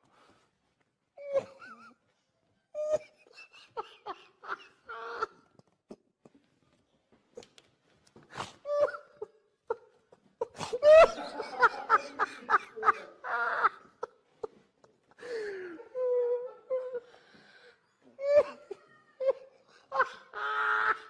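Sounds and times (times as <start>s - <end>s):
man laughing: 10.8s - 14.5s.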